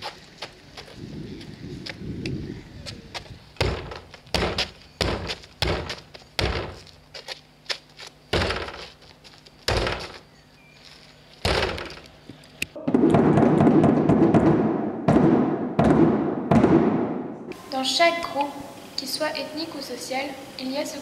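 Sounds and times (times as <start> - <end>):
heavy thuds on plastic bin: 3.6 - 6.8, 8.3 - 8.9, 9.7 - 10.2.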